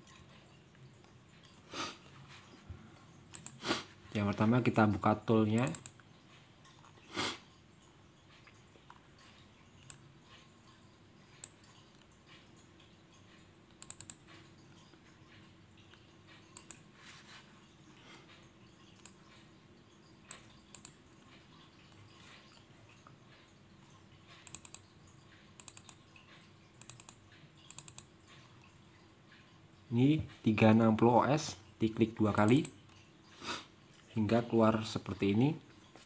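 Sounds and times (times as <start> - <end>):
computer mouse button clicking: 13.8 - 14.2, 24.5 - 24.8, 26.8 - 28.0.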